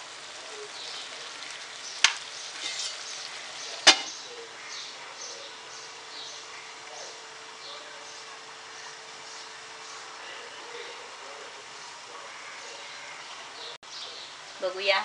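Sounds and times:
food sizzling in a frying pan: 0.0s - 15.0s
metal clinks on a pan: 3.8s - 4.2s.

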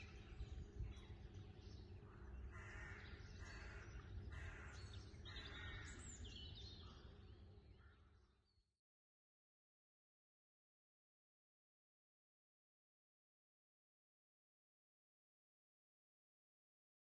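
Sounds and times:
birds harsh calls: 0.0s - 7.2s.

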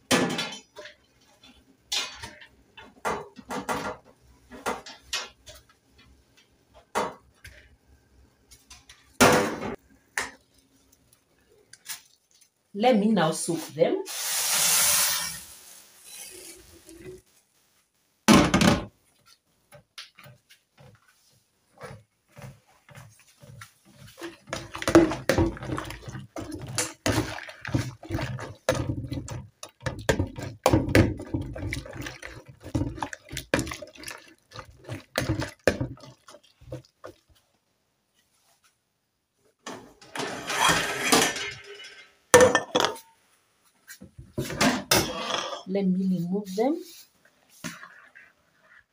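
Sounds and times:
water sloshing: 24.1s - 37.3s.

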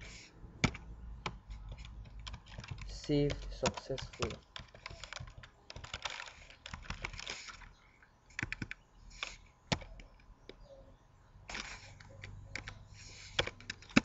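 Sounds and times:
computer keyboard typing: 0.6s - 7.7s, 8.3s - 10.2s, 11.5s - 14.0s.

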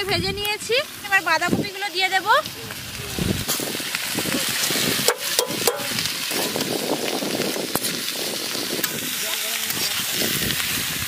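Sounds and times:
cabbage sizzling in hot oil: 0.0s - 11.0s.

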